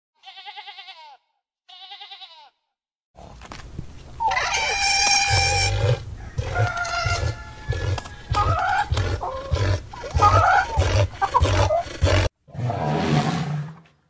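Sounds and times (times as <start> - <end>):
sheep bleating: 0.2 - 2.6, 4.3 - 11.8
animal calls with deep rumble: 4.2 - 13.7.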